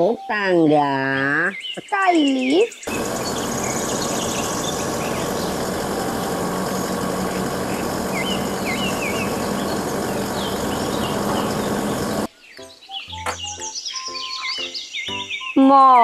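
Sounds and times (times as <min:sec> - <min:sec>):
birds chirping: 0:01.1 - 0:16.0
truck engine running: 0:02.9 - 0:12.3.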